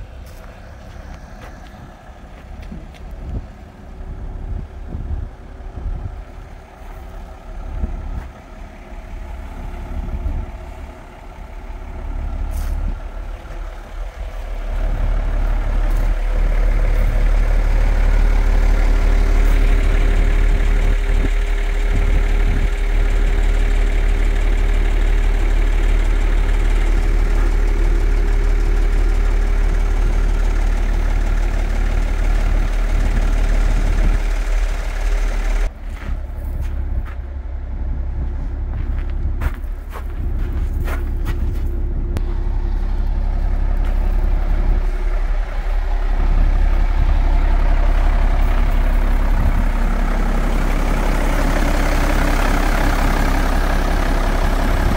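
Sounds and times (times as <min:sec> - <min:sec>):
truck engine idling: 0:00.0 - 0:54.9.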